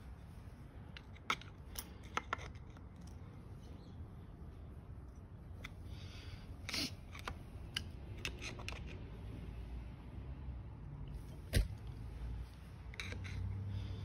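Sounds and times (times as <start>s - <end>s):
screwdriver scraping metal tabs: 12.9s - 13.4s.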